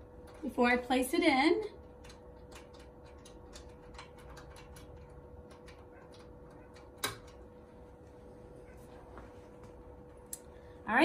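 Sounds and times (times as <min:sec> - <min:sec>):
steady faint hum: 0:00.0 - 0:11.0
small clicks and ticks: 0:01.8 - 0:07.4.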